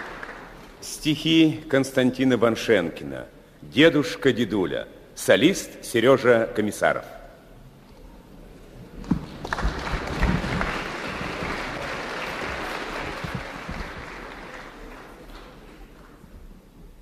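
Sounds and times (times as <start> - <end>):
audience applauding: 0.0 - 0.8, 9.0 - 16.3.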